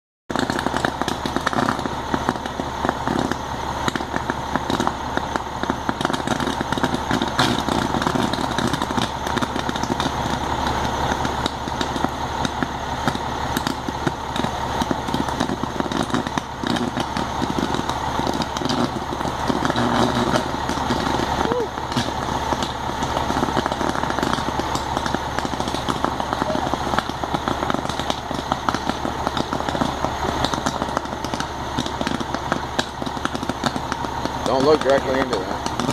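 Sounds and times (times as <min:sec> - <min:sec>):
fire crackling: 0:00.3 - 0:35.9
fire engine droning: 0:00.3 - 0:35.9.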